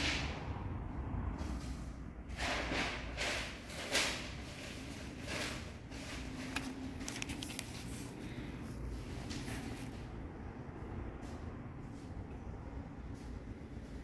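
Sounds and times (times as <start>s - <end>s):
camera handling rustling: 6.5s - 8.2s.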